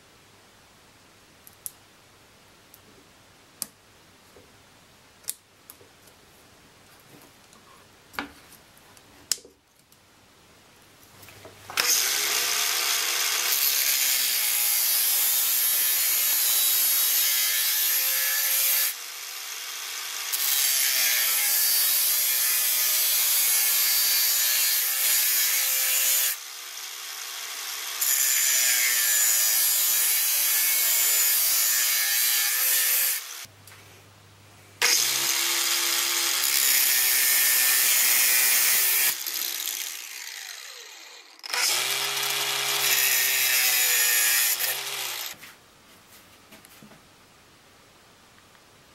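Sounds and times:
angle grinder cutting copper pipe: 0:11.8 - 0:33.5, 0:34.8 - 0:45.4.

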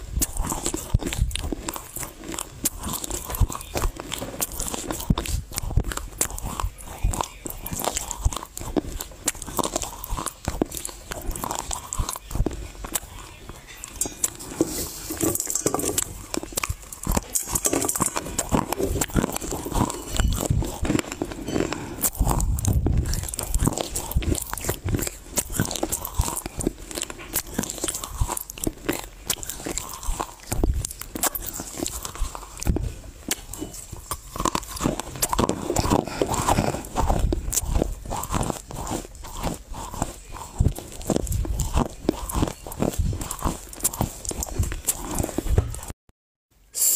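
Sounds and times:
dry clay crunching: 0:00.0 - 0:45.9
wet chewing sounds: 0:00.0 - 0:46.0.

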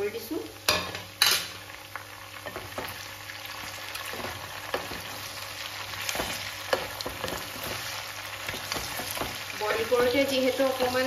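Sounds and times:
food sizzling in a wok: 0:00.0 - 0:11.0
wooden spatula scraping pan: 0:06.0 - 0:10.4.

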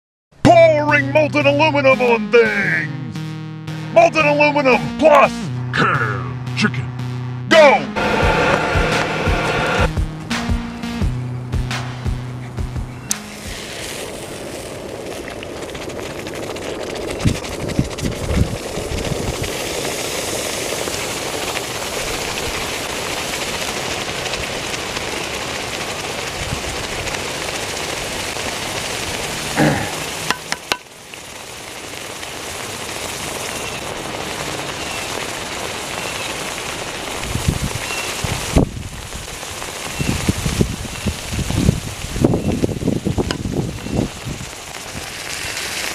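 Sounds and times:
low pops: 0:00.4 - 0:19.7
broth boiling and sizzling: 0:12.8 - 0:45.9.

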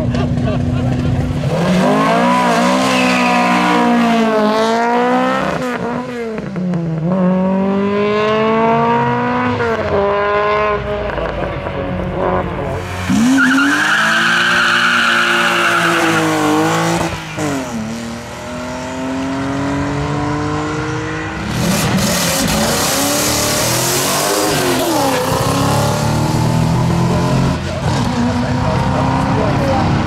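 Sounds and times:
race car engine revving: 0:00.0 - 0:30.0
second race car at full throttle: 0:00.0 - 0:30.0
tyres squealing in wheelspin: 0:01.8 - 0:04.0, 0:13.0 - 0:17.6.

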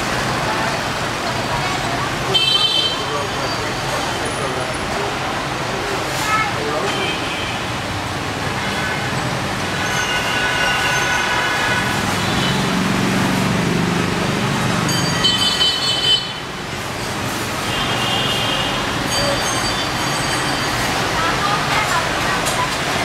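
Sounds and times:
motorbike traffic engine hum: 0:00.0 - 0:23.0
vehicle horns honking: 0:02.3 - 0:03.6, 0:08.6 - 0:12.9, 0:15.2 - 0:16.5, 0:17.6 - 0:19.2.

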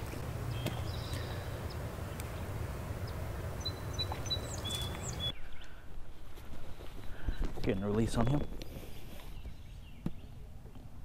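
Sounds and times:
high bird chirps: 0:00.5 - 0:02.4, 0:03.0 - 0:05.8.

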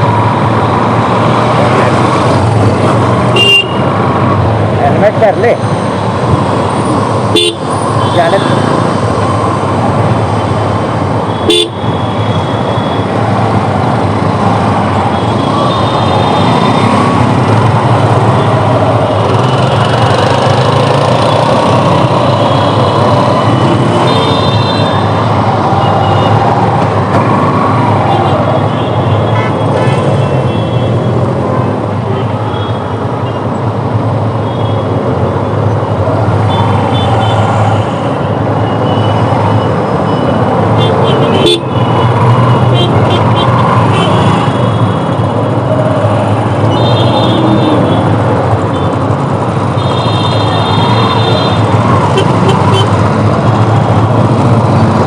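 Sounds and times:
vehicle engines running: 0:11.9 - 0:32.1, 0:34.9 - 0:55.0.

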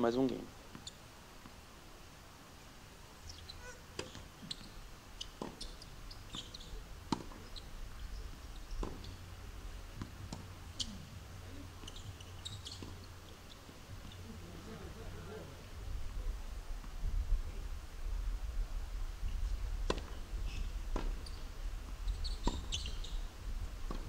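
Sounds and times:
wind rumble on microphone: 0:15.6 - 0:24.0.

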